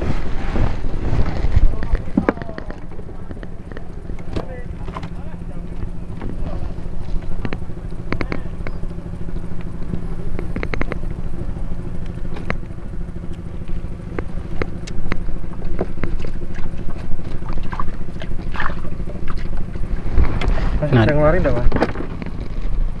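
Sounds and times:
small engine humming: 0.0s - 23.0s
sharp clicks: 7.4s - 11.2s.

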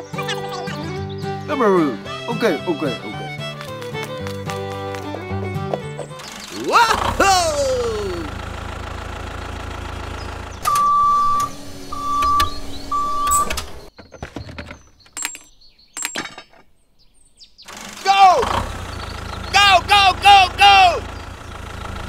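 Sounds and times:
engine idling rumble: 5.1s - 13.9s, 17.7s - 22.0s
short electronic beeps: 10.6s - 13.6s
clicks and knocks: 13.5s - 16.7s.

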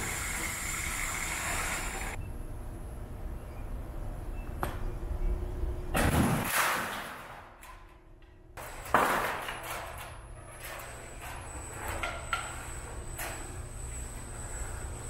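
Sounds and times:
machine hum: 0.0s - 6.0s, 9.6s - 15.0s
thin high whine: 10.8s - 15.0s.

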